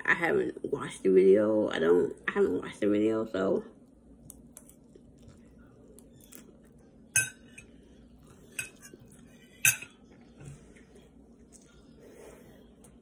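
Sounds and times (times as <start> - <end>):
metal fork clinking on a dish: 7.1 - 7.7, 8.5 - 10.0.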